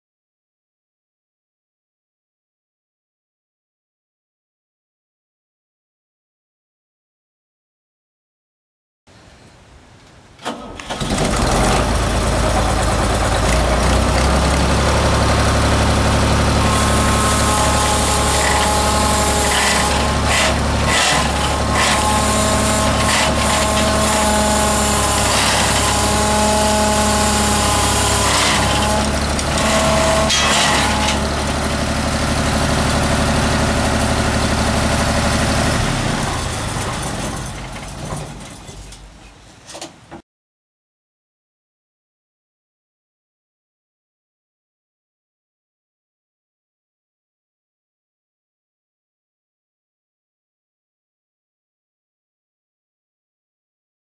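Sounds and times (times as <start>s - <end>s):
engine starting and running: 10.4s - 39.2s.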